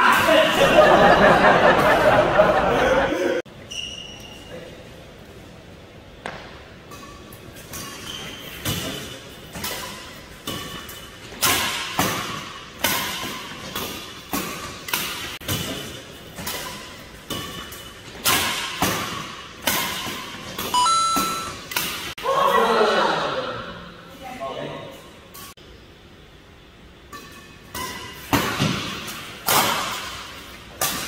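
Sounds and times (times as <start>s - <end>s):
rackets hitting shuttlecock: 6.2s - 22.2s, 27.1s - 31.0s.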